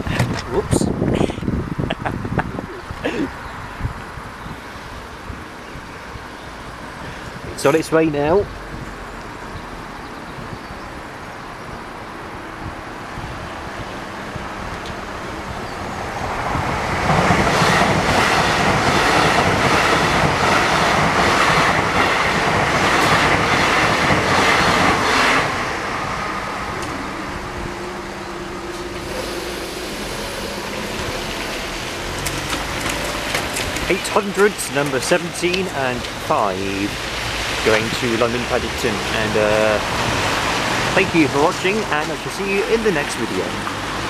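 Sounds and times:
express train passing at speed: 1.6 - 44.0
train wheels clicking over rails: 16.1 - 27.0, 28.6 - 44.0.

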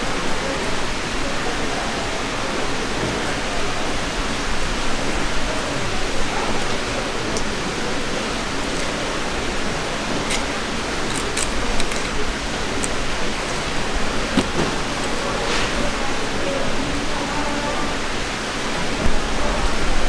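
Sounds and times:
knife filleting fish: 6.2 - 16.0
blade clicking on bone: 10.2 - 13.7.

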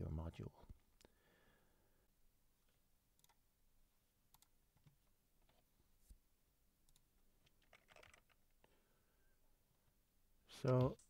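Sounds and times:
computer mouse or key clicks: 3.2 - 3.4, 6.9 - 8.4, 10.6 - 11.0.

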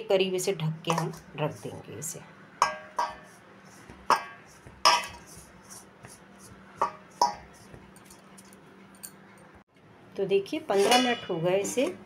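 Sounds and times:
steel mixing bowl clinking: 2.6 - 3.3, 4.1 - 5.4, 6.8 - 9.2.

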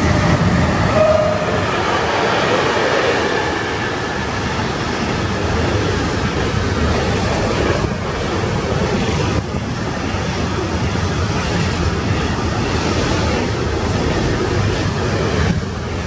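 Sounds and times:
train wheels on rails: 0.0 - 16.0.

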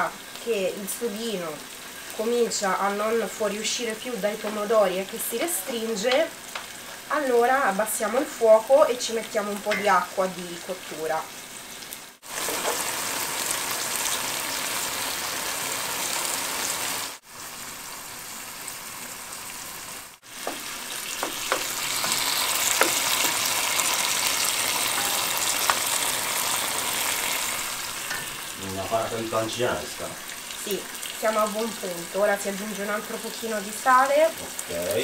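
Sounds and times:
food sizzling in oil: 0.0 - 35.0
utensil clicking against pan: 21.2 - 23.4
person speaking: 28.6 - 30.2, 34.3 - 35.0.

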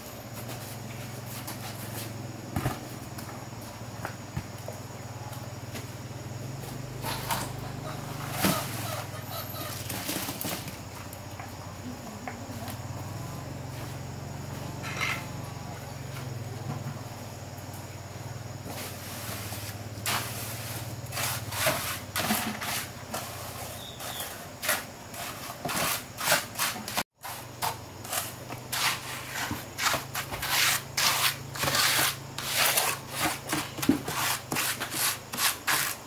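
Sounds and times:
hand tool scraping brick: 19.5 - 36.0.

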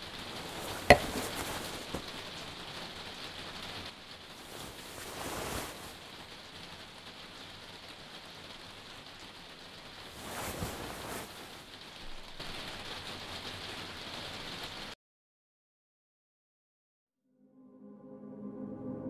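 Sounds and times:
steady rain: 0.0 - 15.0.

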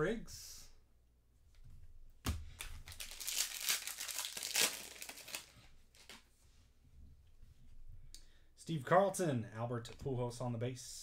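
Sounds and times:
wrapper crinkling: 2.6 - 6.2.

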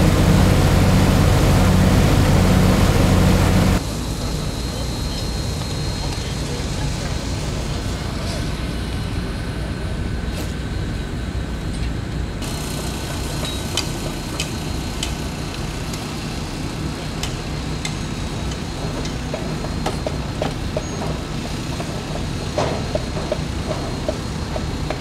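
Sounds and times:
low construction rumble: 0.0 - 25.0.

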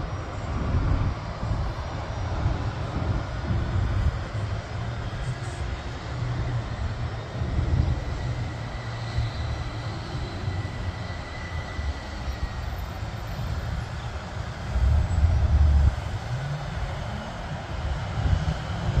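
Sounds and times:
distant jet engines running: 0.0 - 19.0.

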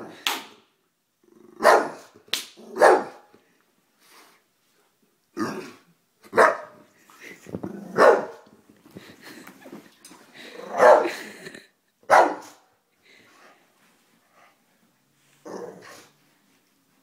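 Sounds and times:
dog barking: 1.6 - 2.1, 2.7 - 3.3, 6.4 - 6.8, 8.0 - 8.4, 10.8 - 11.1, 12.1 - 12.6.

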